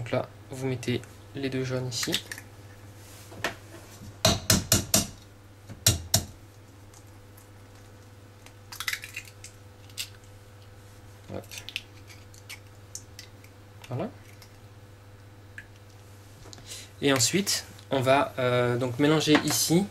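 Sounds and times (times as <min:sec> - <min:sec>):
eggshell scraping and clicking: 0:08.4 - 0:10.7, 0:11.3 - 0:14.6.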